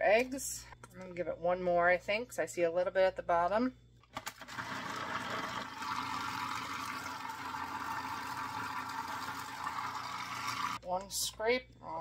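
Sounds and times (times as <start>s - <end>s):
food processor whirring: 4.2s - 10.8s.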